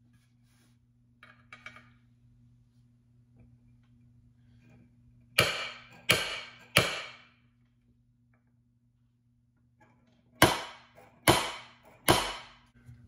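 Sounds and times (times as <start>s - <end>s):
center punch striking metal: 5.4s - 7.4s, 10.4s - 12.6s.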